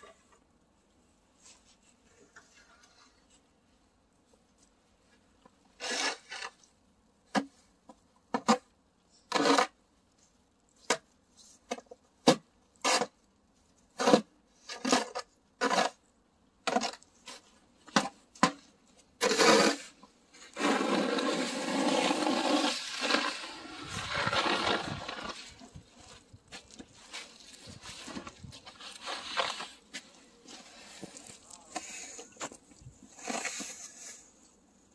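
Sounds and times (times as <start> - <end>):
snow shovel scraping asphalt: 5.8 - 6.6, 9.3 - 9.8, 19.2 - 34.4.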